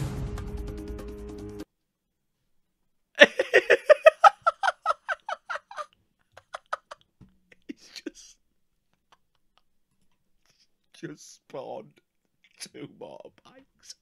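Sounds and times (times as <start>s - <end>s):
young man laughing: 3.2s - 9.7s.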